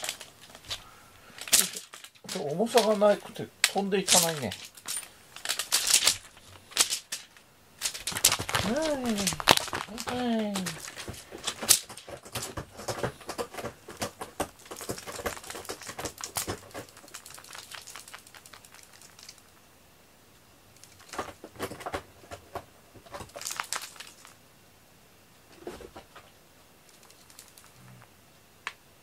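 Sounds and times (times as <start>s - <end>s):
clicks and taps on foam mats: 8.2s - 17.0s.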